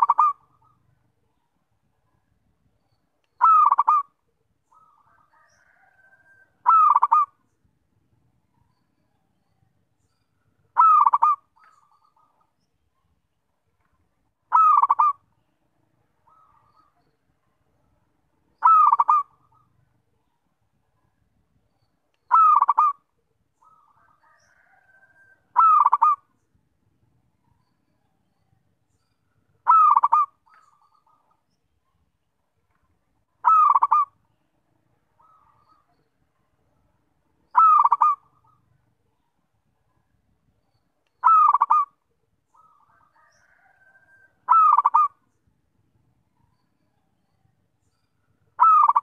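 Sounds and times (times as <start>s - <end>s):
dove cooing: 0.0s - 0.9s, 3.4s - 7.4s, 10.8s - 12.3s, 14.5s - 15.2s, 18.6s - 19.7s, 22.3s - 23.0s, 23.6s - 26.3s, 29.6s - 31.2s, 33.4s - 34.2s, 37.5s - 38.7s, 41.2s - 42.0s, 42.6s - 45.2s, 48.6s - 49.0s.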